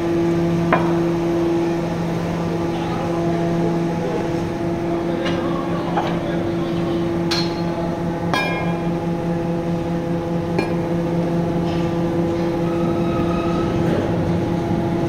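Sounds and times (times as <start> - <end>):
machinery hum: 0.0 - 15.0.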